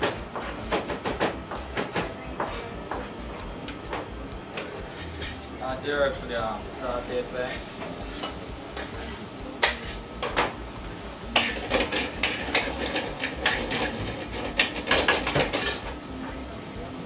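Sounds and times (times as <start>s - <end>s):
utensils scraping metal frying pan: 4.6s - 5.5s, 7.0s - 10.0s, 11.3s - 16.0s.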